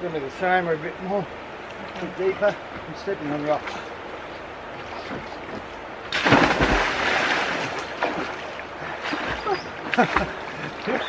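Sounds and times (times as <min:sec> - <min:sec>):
water churning and sloshing: 0:01.6 - 0:11.0
loud splash: 0:06.1 - 0:10.5.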